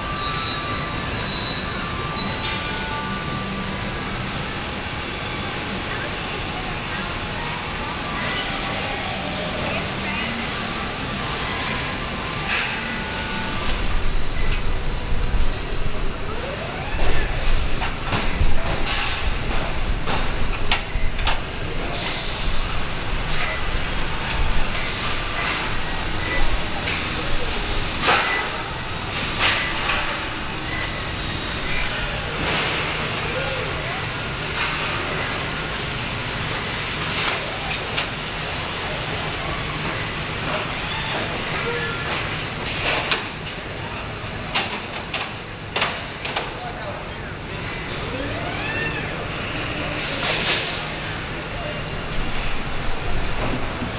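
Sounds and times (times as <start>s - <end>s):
machinery hum and hiss: 0.0s - 53.9s
compressed air hiss: 22.0s - 23.0s
machinery rumble: 46.8s - 53.9s.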